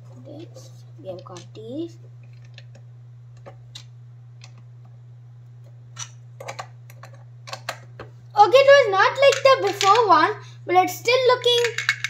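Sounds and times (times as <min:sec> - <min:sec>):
steady low hum: 0:00.0 - 0:12.0
plastic bricks clicking: 0:11.6 - 0:12.0.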